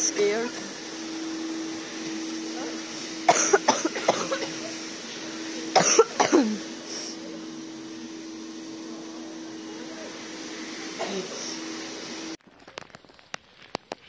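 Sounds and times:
steady low hum: 0:00.0 - 0:12.4
person coughing: 0:03.3 - 0:04.7, 0:05.7 - 0:06.7.

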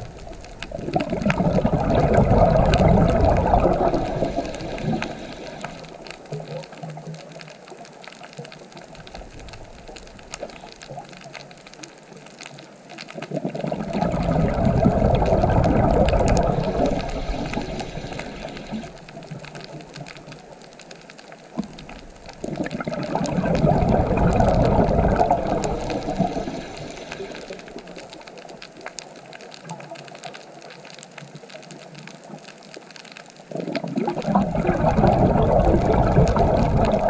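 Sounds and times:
underwater regulator bubbling: 0:00.0 - 0:07.4, 0:13.2 - 0:20.5, 0:21.6 - 0:28.7, 0:33.5 - 0:37.0
faint clicks: 0:00.0 - 0:37.0.

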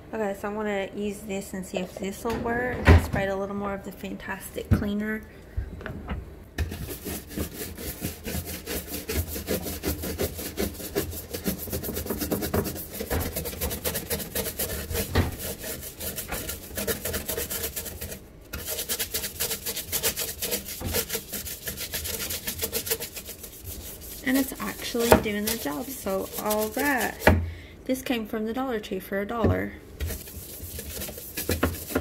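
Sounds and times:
brush scrubbing plastic: 0:06.6 - 0:27.4, 0:30.0 - 0:32.0.

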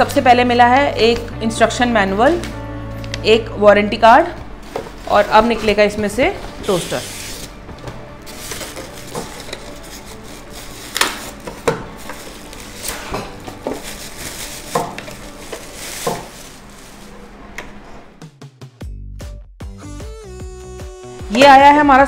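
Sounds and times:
appliance pulled out of box: 0:08.2 - 0:18.0
plastic bag crinkling: 0:08.3 - 0:17.2.

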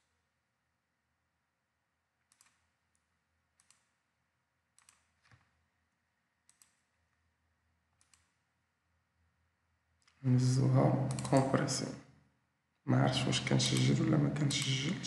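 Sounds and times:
faint computer mouse clicks: 0:02.3 - 0:03.0, 0:03.6 - 0:03.9, 0:04.8 - 0:05.4, 0:06.5 - 0:06.9, 0:08.0 - 0:08.4, 0:11.1 - 0:11.4.

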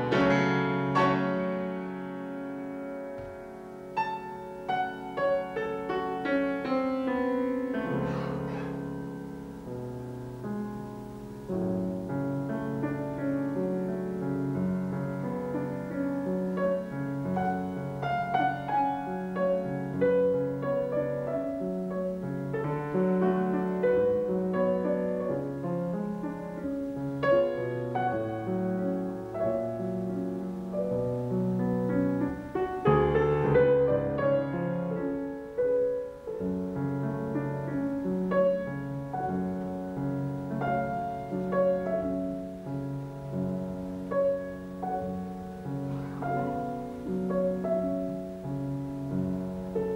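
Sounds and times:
classical piano piece: 0:00.0 - 0:49.9.

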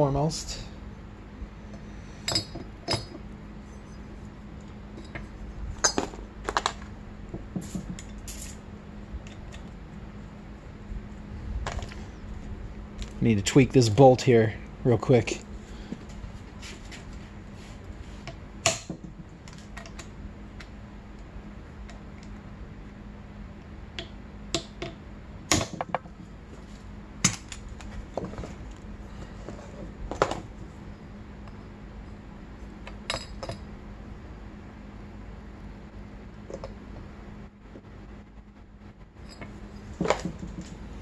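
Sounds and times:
steady low hum: 0:00.0 - 0:41.0
metal tool clinking on engine parts: 0:02.2 - 0:03.2.

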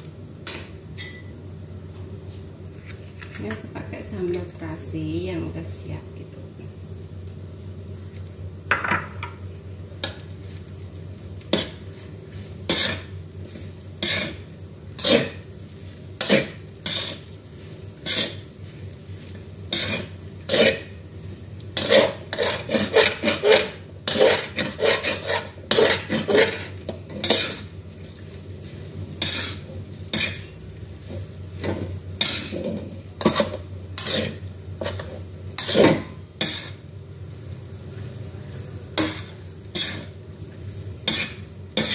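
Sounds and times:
metal spatula scraping a wok: 0:11.5 - 0:14.4, 0:15.0 - 0:15.5, 0:16.2 - 0:20.9, 0:21.8 - 0:27.7, 0:28.6 - 0:36.9, 0:39.0 - 0:40.2, 0:41.0 - 0:41.9.

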